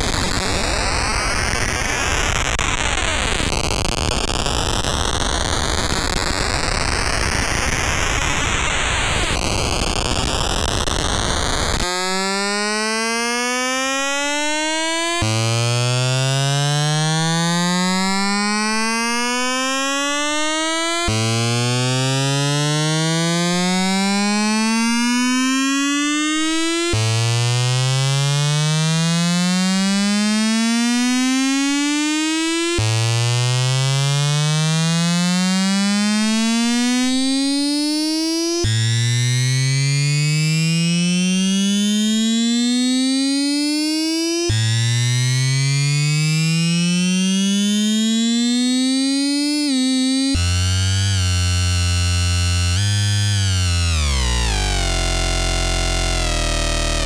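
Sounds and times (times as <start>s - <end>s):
buzzy synth tone: 45.7s - 57.0s.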